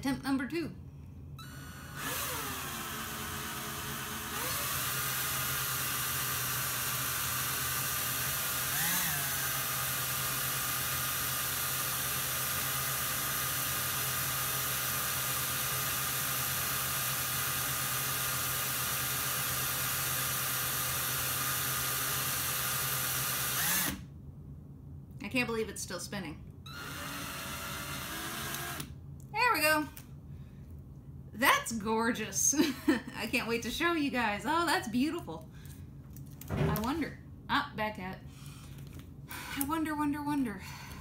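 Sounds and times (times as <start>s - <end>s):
cordless drill motor whine: 1.4s - 24.0s, 26.7s - 29.0s.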